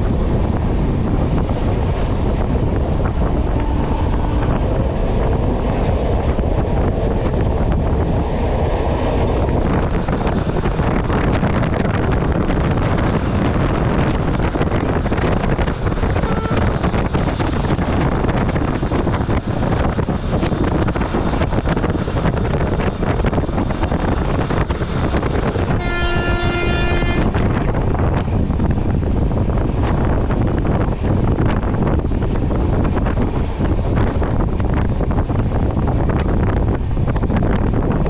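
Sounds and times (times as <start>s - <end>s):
wheels rumbling on track: 0.0s - 38.0s
train horn: 3.5s - 4.5s, 16.0s - 17.0s, 25.7s - 27.4s.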